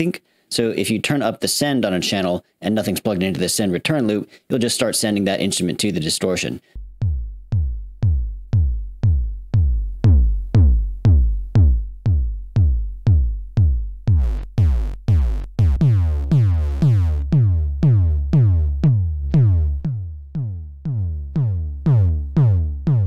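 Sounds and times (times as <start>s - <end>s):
drum machine kick drum: 6.8s - 23.0s.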